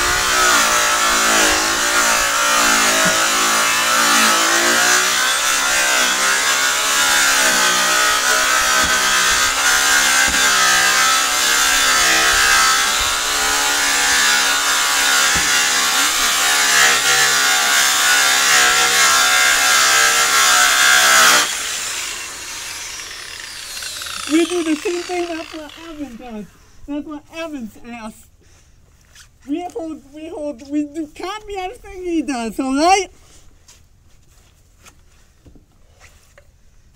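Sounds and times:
rotary polisher on metal: 0:00.0 - 0:26.3.

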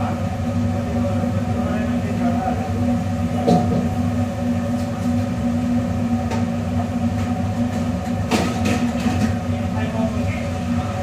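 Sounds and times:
kitchen equipment droning: 0:00.0 - 0:11.0.

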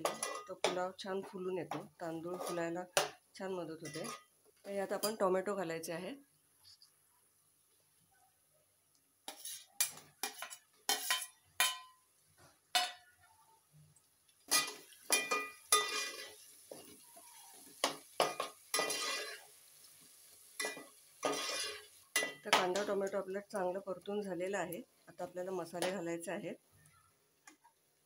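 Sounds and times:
metal spoon scraping metal pot: 0:02.2 - 0:02.8, 0:03.8 - 0:04.3, 0:09.3 - 0:11.9, 0:14.5 - 0:16.4, 0:18.4 - 0:19.4, 0:20.6 - 0:22.9.

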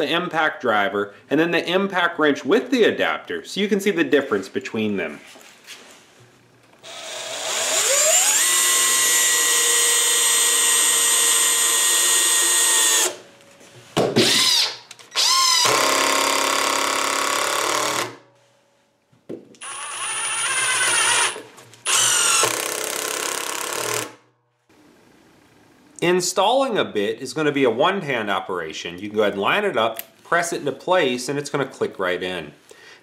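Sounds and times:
drill motor whine: 0:06.8 - 0:13.2, 0:14.2 - 0:18.1, 0:19.6 - 0:24.1
impact driver driving screws: 0:06.8 - 0:13.2, 0:14.2 - 0:18.2, 0:19.6 - 0:24.2
impact wrench driving screw: 0:06.8 - 0:13.2, 0:14.2 - 0:18.2, 0:19.6 - 0:24.2.

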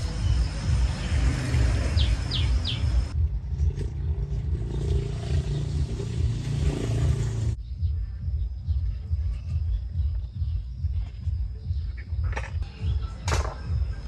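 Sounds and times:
bird chirps: 0:00.0 - 0:03.1.

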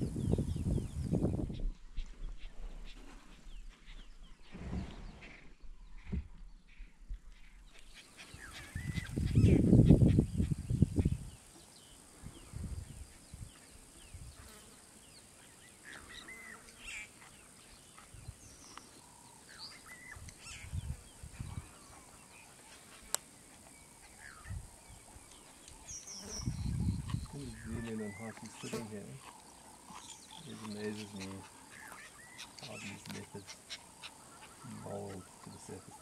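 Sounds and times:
birds chirping faintly: 0:00.0 - 0:36.0
leopard growling and chewing: 0:29.2 - 0:33.8.

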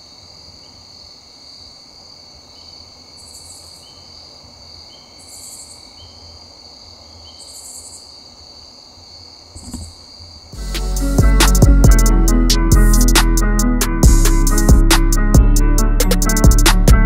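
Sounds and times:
crickets trilling: 0:00.0 - 0:10.6
insect chirps: 0:00.0 - 0:10.6
brief knock: 0:09.6 - 0:10.0.

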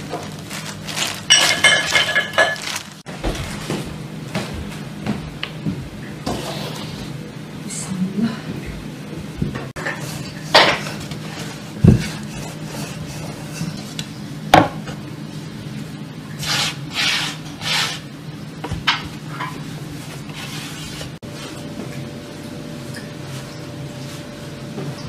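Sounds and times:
rolling pin swishing on dough: 0:16.4 - 0:18.1, 0:20.0 - 0:21.2.

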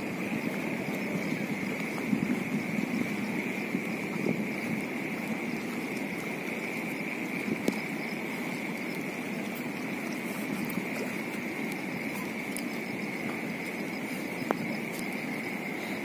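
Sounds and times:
floodwater rushing: 0:00.0 - 0:16.0.

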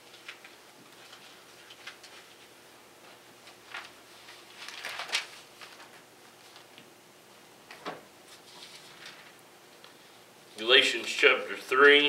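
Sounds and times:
thin pages rustling: 0:00.0 - 0:06.8, 0:08.3 - 0:09.4.

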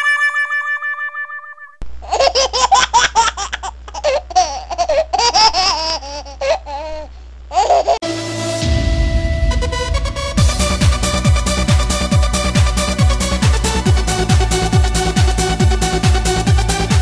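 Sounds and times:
electronic music: 0:00.0 - 0:01.8, 0:08.0 - 0:17.0
low hum: 0:08.0 - 0:16.9.

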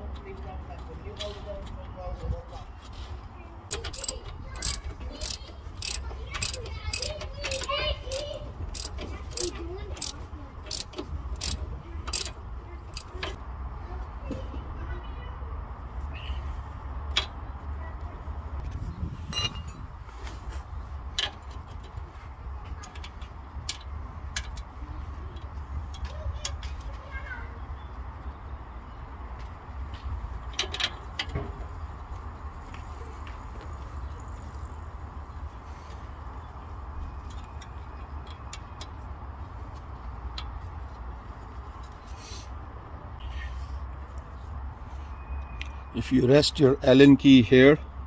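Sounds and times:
metallic clicks of spanner on nut: 0:03.7 - 0:13.4.

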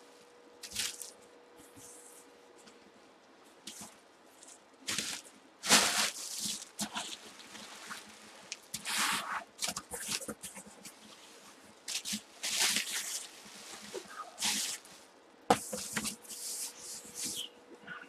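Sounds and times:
cardboard scraping and rustling: 0:04.9 - 0:08.2.

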